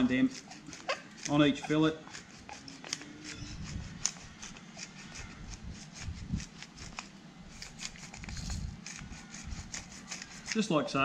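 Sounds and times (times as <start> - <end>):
pepper mill grinding: 0.0 - 10.7.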